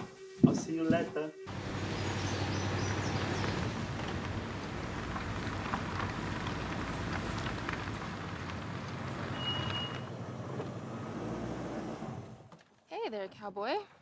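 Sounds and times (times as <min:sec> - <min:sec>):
tyres crackling on dirt road: 0:00.9 - 0:13.0
pickup truck engine running: 0:01.5 - 0:10.6
brief high squeal: 0:09.3 - 0:10.1.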